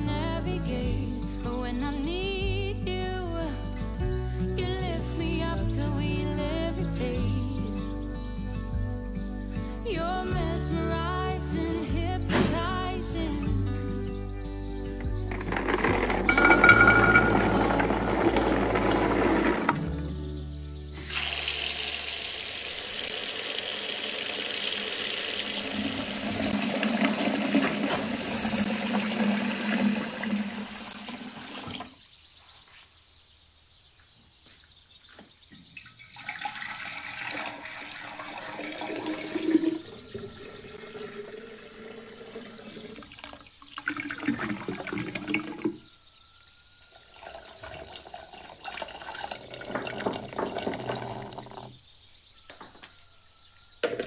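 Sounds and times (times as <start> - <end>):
water poured into glass jar: 15.3 - 19.8, 36.0 - 45.8, 46.9 - 51.8
kitchen tap running: 21.1 - 31.8, 36.1 - 45.5, 47.1 - 51.7.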